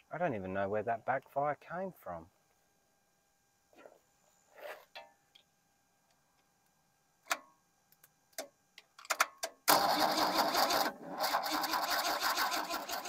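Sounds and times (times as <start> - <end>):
starter motor cranking engine: 9.7 - 13.0.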